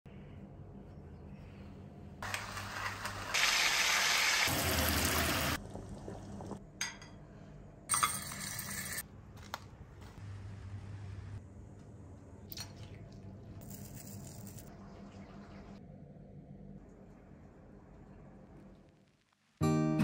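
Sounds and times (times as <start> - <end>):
water gushing and splashing: 3.2 - 6.6.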